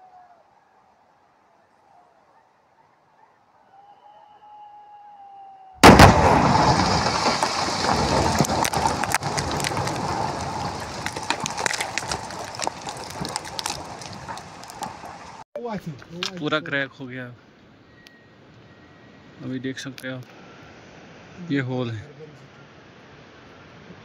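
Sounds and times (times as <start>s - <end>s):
loud explosion bang: 5.8s - 13.2s
falling rock cracking: 5.8s - 15.4s.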